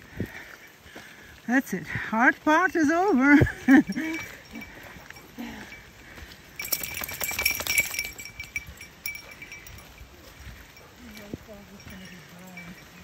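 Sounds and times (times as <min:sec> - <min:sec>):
small bell jingling: 0:02.6 - 0:13.0.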